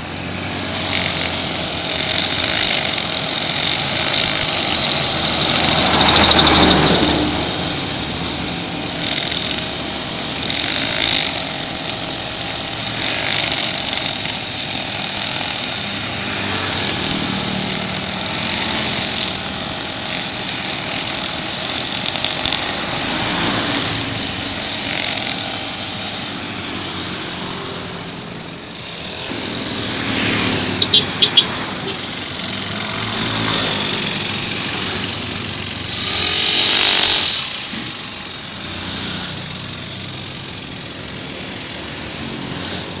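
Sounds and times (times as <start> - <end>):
road traffic passing: 0.0 - 43.0
string trimmer engine whining: 0.0 - 43.0
short sharp beeps: 30.7 - 32.0.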